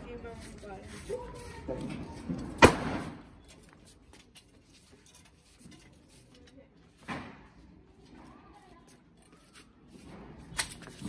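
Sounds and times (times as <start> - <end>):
firecracker bang: 2.6 - 3.2.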